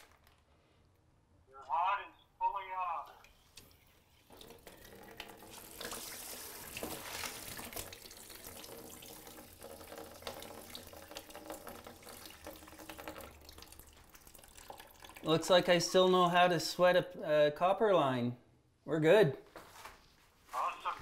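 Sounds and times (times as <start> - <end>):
water hissing through pipes: 3.3 - 16.2.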